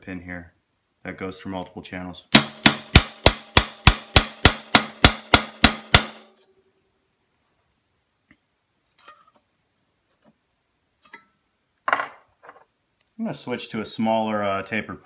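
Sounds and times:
hammer striking ringing punch: 2.4s - 6.3s.

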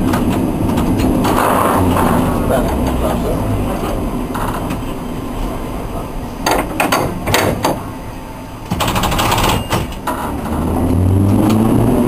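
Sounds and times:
traction motors humming: 0.0s - 8.7s.

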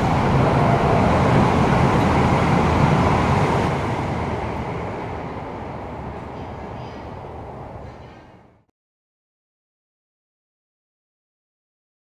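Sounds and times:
high-speed train rushing past: 0.0s - 8.7s.

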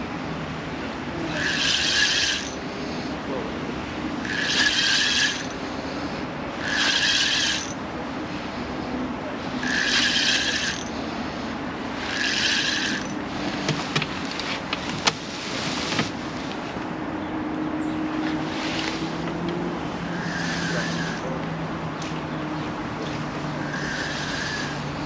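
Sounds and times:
fishing reel whirring: 1.3s - 2.7s, 4.2s - 5.7s, 6.6s - 7.8s, 9.6s - 11.0s, 12.0s - 13.3s, 20.1s - 21.2s, 23.6s - 25.0s
sharp clicks and knocks: 12.2s - 15.2s.

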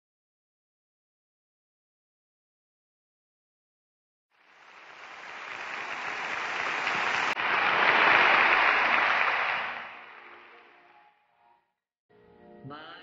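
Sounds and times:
audience applauding: 4.4s - 10.9s.

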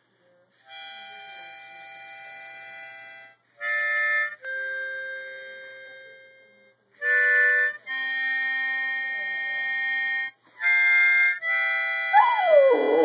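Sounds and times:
harmonica chords: 0.7s - 13.0s.

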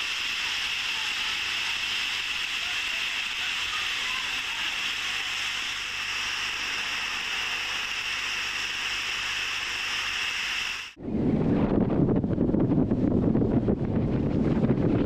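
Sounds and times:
waterfall splashing onto water: 0.0s - 6.0s.

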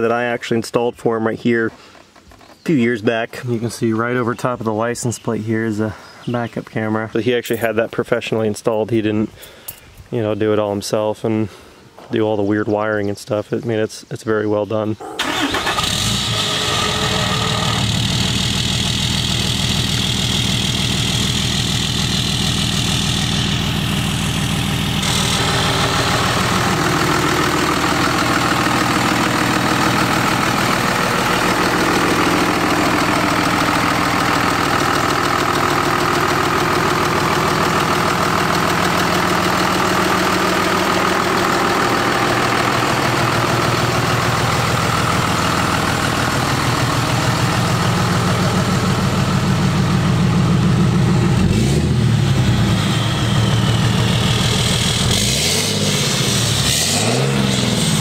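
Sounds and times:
diesel truck engine idling: 15.0s - 58.0s.

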